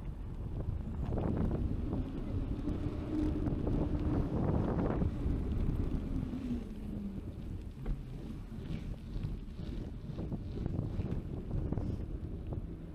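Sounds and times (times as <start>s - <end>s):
wind buffeting microphone: 0.0s - 12.9s.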